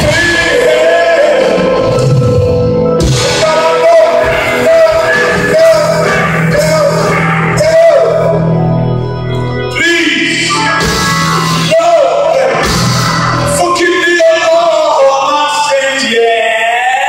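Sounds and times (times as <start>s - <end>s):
drum kit: 0.0s - 8.5s, 10.5s - 14.9s
person singing: 0.0s - 8.6s
electric guitar: 0.0s - 14.0s
organ: 0.0s - 17.0s.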